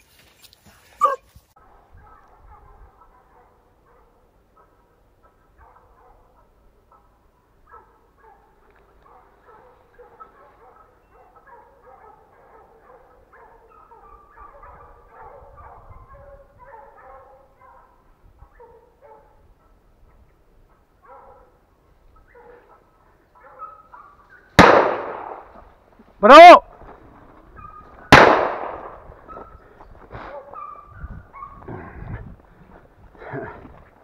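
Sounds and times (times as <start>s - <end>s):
distant dogs barking and baying: 0.0s - 34.0s
loud gunshot: 24.6s - 25.5s, 28.1s - 29.0s.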